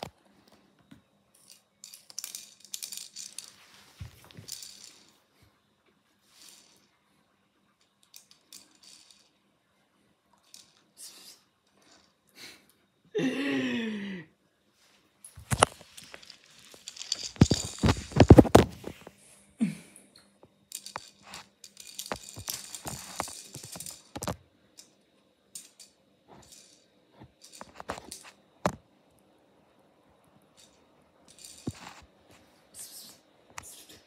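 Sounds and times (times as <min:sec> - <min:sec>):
plastic toy car clattering on tiles: 0:01.3 - 0:03.6, 0:15.4 - 0:18.8, 0:20.7 - 0:28.8, 0:30.6 - 0:32.1.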